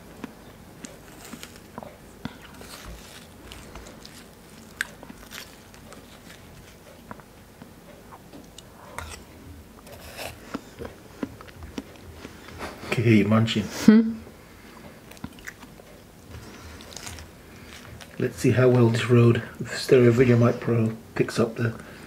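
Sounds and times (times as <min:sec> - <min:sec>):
chewing: 0:00.1 - 0:12.9, 0:14.6 - 0:19.0
spoon scraping watermelon: 0:00.9 - 0:06.8, 0:08.5 - 0:13.0.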